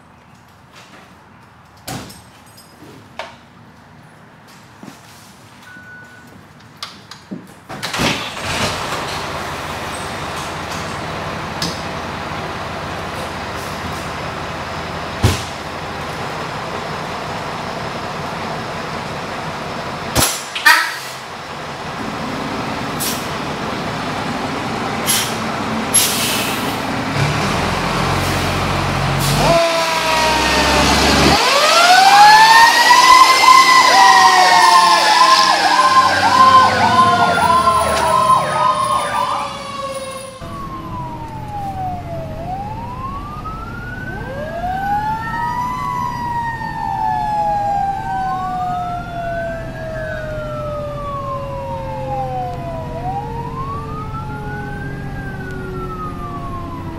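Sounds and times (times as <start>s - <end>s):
fire engines running: 0.0s - 56.9s
siren wailing and yelping: 29.4s - 56.9s.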